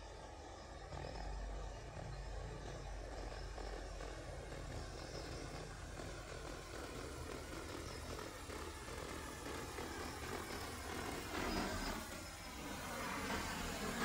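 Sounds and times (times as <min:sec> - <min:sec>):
drone rotors humming: 0:00.0 - 0:14.0.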